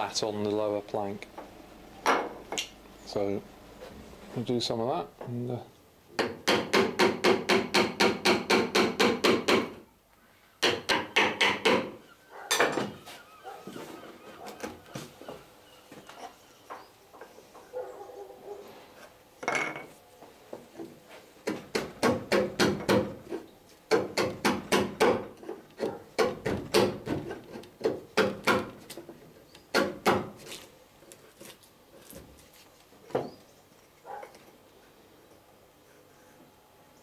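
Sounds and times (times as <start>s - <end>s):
chisel paring wood: 6.2s - 9.8s, 10.6s - 12.0s, 21.4s - 29.0s, 29.6s - 30.5s.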